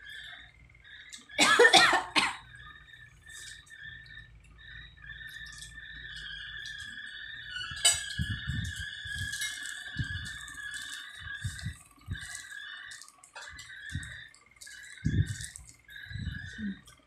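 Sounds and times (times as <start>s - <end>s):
high-pitched drone: 0.0s - 17.0s
people chewing: 3.2s - 3.8s, 5.3s - 17.0s.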